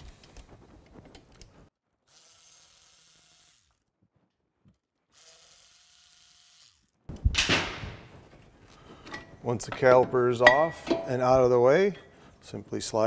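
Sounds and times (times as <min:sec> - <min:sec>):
electric ratchet running: 0:02.1 - 0:03.8, 0:05.1 - 0:07.0
tool clatter: 0:09.0 - 0:11.5.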